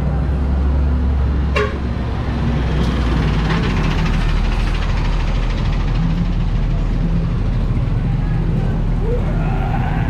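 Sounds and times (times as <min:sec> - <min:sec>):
vehicle engines idling and running: 0:00.0 - 0:10.0.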